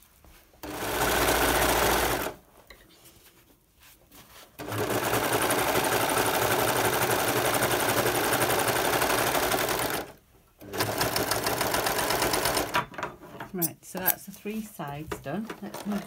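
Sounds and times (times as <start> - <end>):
overlocker sewing machine running: 0.6 - 2.4, 4.6 - 12.8.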